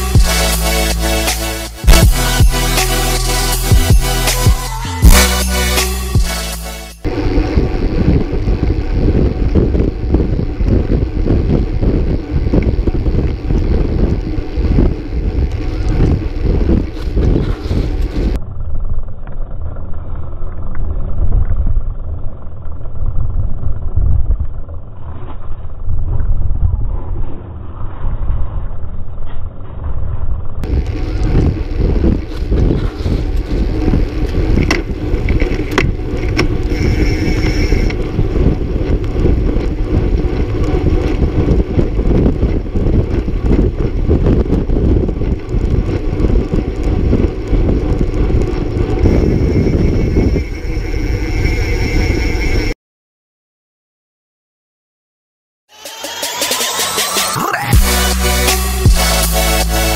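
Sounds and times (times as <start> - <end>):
wind rushing over microphone: 7.0 - 52.8
sharp clicks and clatters: 30.6 - 49.8.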